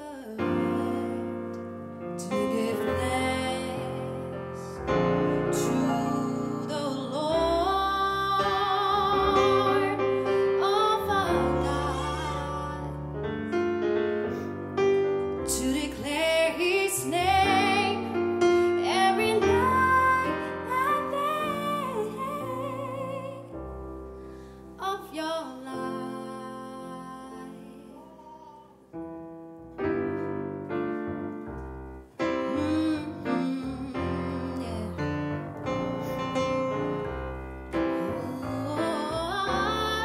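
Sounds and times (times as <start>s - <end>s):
woman singing gospel: 0.0s - 1.4s, 2.2s - 13.1s, 15.4s - 23.5s, 24.8s - 28.0s, 32.5s - 35.1s, 38.0s - 40.0s
keyboard piano chords: 0.0s - 40.0s.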